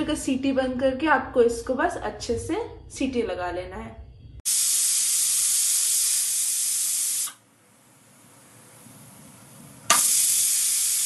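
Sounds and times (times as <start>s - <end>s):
pressure cooker steam hiss: 4.4s - 7.4s, 9.8s - 11.0s.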